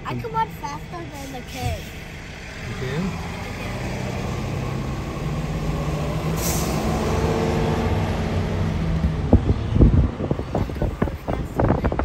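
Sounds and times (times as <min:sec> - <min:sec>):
garbage truck diesel engine running: 0:00.0 - 0:12.0
air brakes hiss: 0:06.4 - 0:06.8
low thumps: 0:07.8 - 0:12.0.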